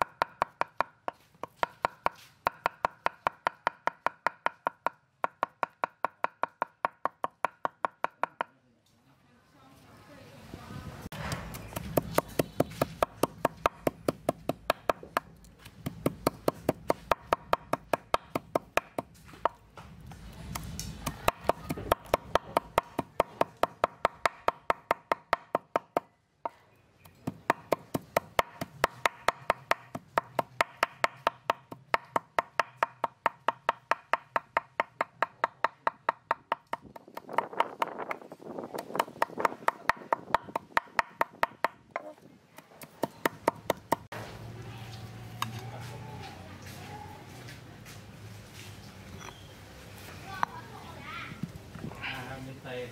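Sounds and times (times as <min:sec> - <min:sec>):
knife chopping on wooden board: 0:00.0 - 0:08.5, 0:11.2 - 0:19.6, 0:20.5 - 0:26.0, 0:27.1 - 0:38.0, 0:38.7 - 0:44.1.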